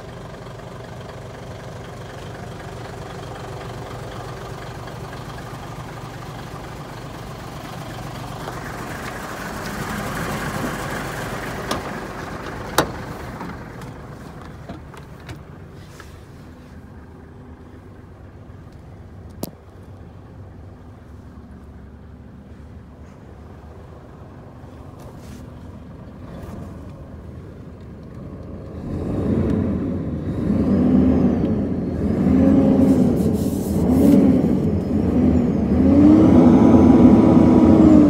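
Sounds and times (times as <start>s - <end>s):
truck diesel engine idling: 0.0s - 28.6s.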